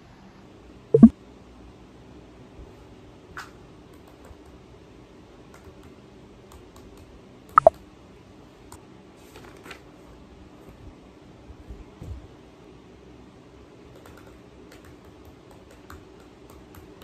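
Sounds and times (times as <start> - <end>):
laptop keyboard tapping: 13.9 - 17.0.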